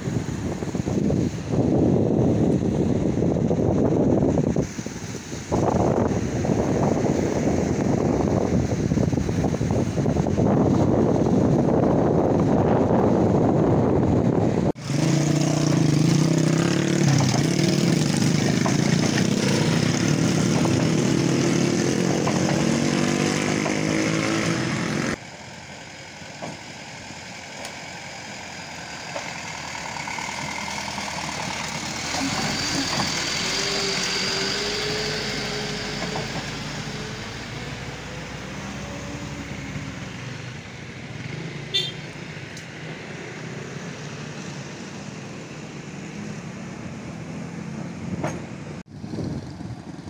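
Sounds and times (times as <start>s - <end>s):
wind buffeting microphone: 0.0s - 25.2s, 42.8s - 50.0s
roadside ambience: 0.0s - 50.0s.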